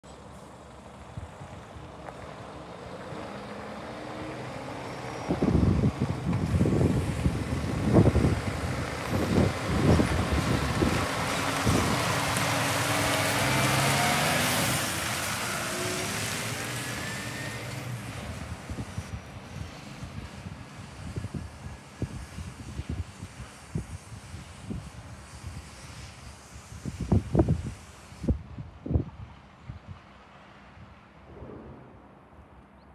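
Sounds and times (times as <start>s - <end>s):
truck diesel engine: 0.0s - 20.9s.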